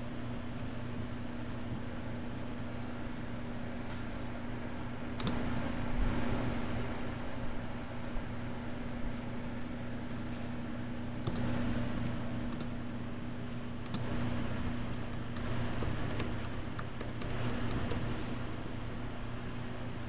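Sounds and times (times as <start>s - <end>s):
steady low hum: 0.0s - 20.0s
laptop keyboard typing: 11.2s - 12.9s, 13.8s - 18.3s.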